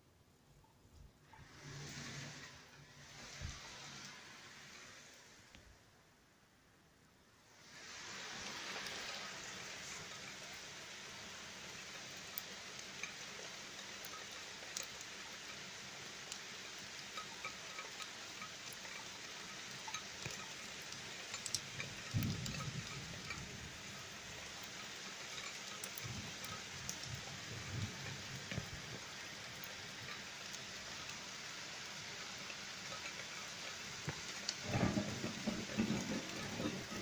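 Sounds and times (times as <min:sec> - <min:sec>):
steady rain falling: 0:00.0 - 0:37.0
sharp ticks of drops: 0:08.4 - 0:37.0
low thunder rumble: 0:34.6 - 0:37.0.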